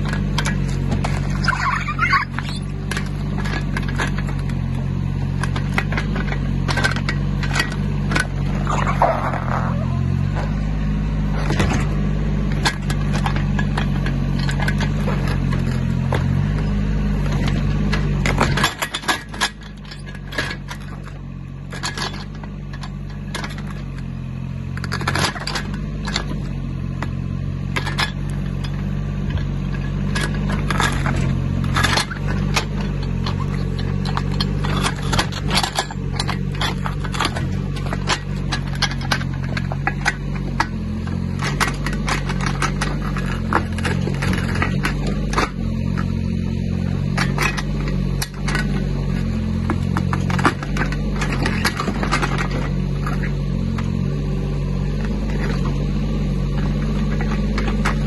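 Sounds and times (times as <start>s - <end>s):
roots cracking and scraping: 0.0s - 18.4s
excavator diesel engine running: 0.0s - 58.0s.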